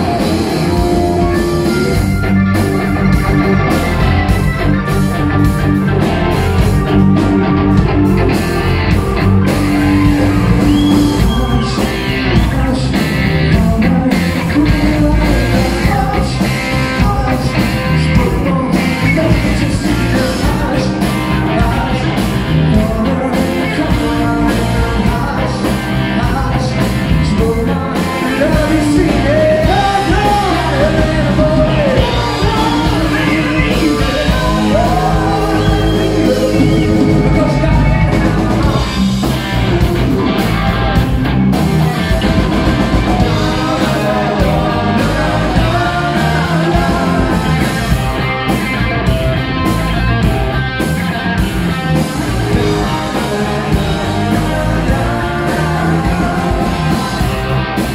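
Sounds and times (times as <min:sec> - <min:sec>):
person singing: 0:00.0 - 0:03.8, 0:06.5 - 0:40.9, 0:42.4 - 0:48.2, 0:52.2 - 0:57.9
drums: 0:00.0 - 0:57.9
electric bass: 0:00.0 - 0:57.9
electric guitar: 0:00.0 - 0:57.9.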